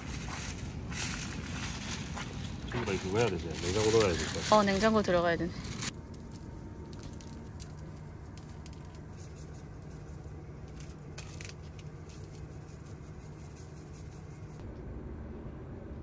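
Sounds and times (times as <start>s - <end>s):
plastic wrap rustling: 0.0s - 14.4s
pepper shaker patters and ticks: 0.0s - 14.6s
steady low hum: 0.0s - 16.0s.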